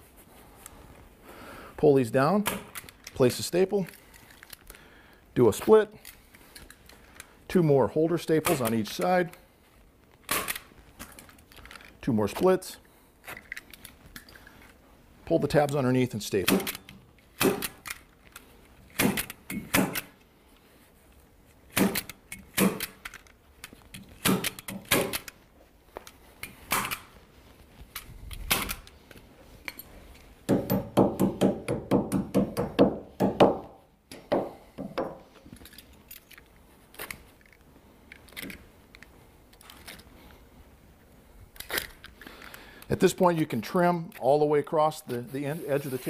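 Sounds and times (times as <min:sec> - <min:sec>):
hand stapler clicks: 0:16.5 - 0:18.0, 0:18.9 - 0:20.1, 0:21.7 - 0:23.3, 0:23.9 - 0:25.4.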